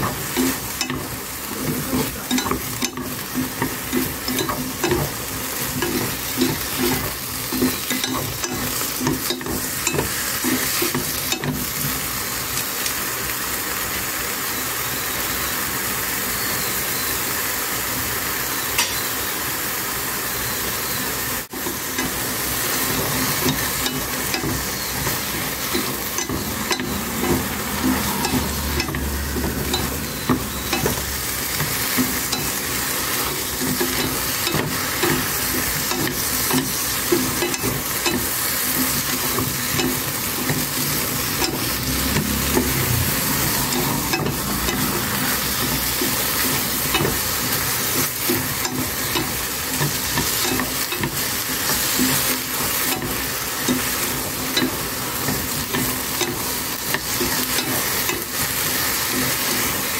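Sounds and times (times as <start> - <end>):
eggplant sizzling in a pan: 0.0 - 59.9.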